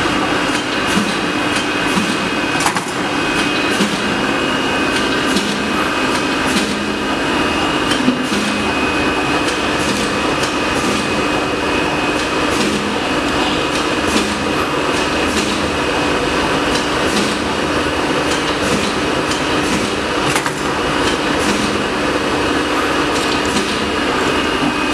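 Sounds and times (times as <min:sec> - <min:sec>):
machine whirring: 0:00.0 - 0:24.9.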